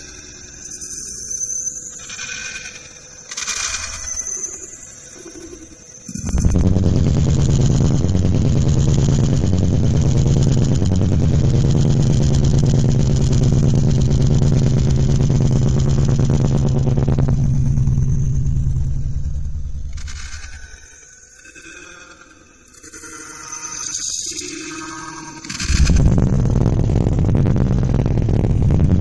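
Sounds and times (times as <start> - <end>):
loud bass-heavy music from subwoofer: 6.2 - 20.2, 25.7 - 29.0.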